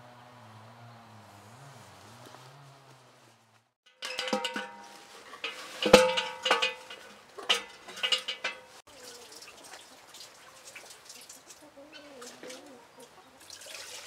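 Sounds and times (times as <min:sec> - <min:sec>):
metal can clanking on cable: 0:03.9 - 0:08.8.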